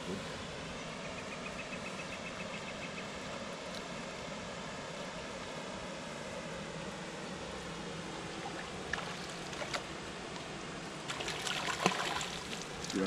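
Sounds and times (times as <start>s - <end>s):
background hiss: 0.0s - 13.0s
fish splashing in water: 8.4s - 9.9s, 11.0s - 13.0s.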